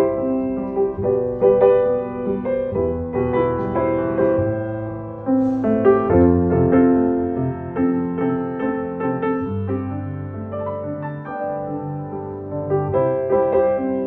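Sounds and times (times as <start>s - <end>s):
grand piano playing: 0.0s - 14.0s.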